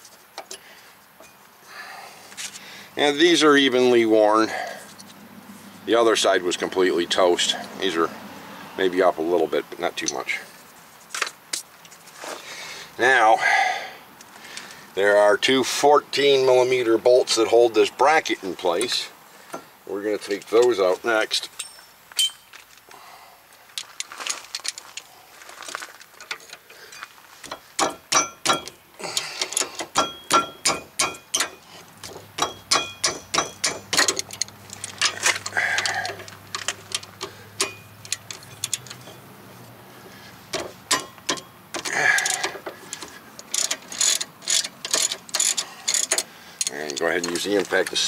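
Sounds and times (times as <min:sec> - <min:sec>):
hand ratchet clicking: 0:27.5 - 0:39.2, 0:40.5 - 0:48.0.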